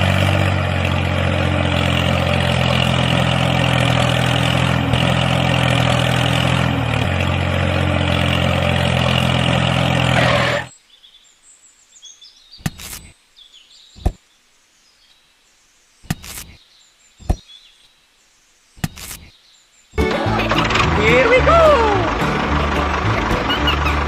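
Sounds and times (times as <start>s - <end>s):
faint bird chirps: 10.7s - 20.0s.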